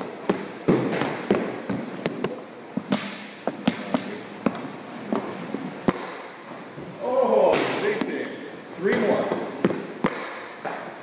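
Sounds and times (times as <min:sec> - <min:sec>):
hockey puck clacks and knocks: 0:00.1 - 0:06.2, 0:08.8 - 0:11.0.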